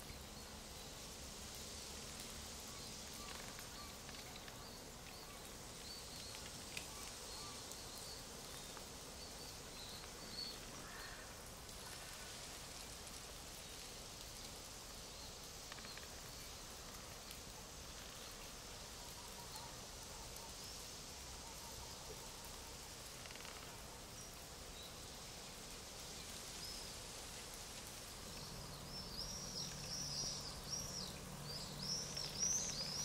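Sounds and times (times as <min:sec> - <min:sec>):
leaves rustling: 0:00.0 - 0:33.0
light ticks: 0:01.4 - 0:12.2, 0:12.8 - 0:20.7, 0:27.4 - 0:33.0
faint bird chirps: 0:02.6 - 0:11.3, 0:28.3 - 0:33.0.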